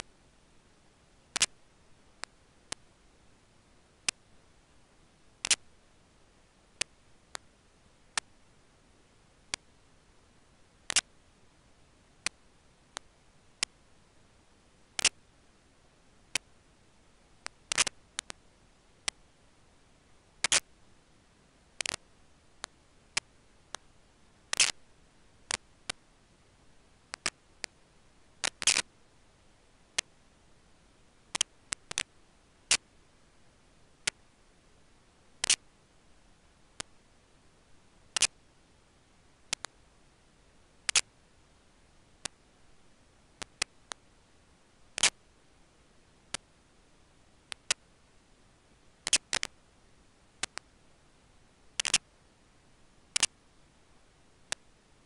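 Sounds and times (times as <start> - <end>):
faint steady hiss: 0.0 - 55.0
sharp irregular clicks: 1.3 - 1.6, 5.4 - 5.7, 6.8 - 7.5, 9.5 - 9.7, 10.9 - 11.1, 15.0 - 15.2, 17.4 - 18.4, 20.4 - 20.7, 21.8 - 22.0, 24.5 - 24.8, 27.1 - 27.8, 28.4 - 28.9, 31.3 - 32.8, 35.4 - 35.7, 38.2 - 38.4, 39.5 - 39.8, 40.9 - 41.1, 42.2 - 42.4, 43.4 - 44.0, 44.9 - 45.2, 47.5 - 47.8, 49.0 - 49.6, 50.4 - 50.7, 51.8 - 52.1, 53.1 - 53.4.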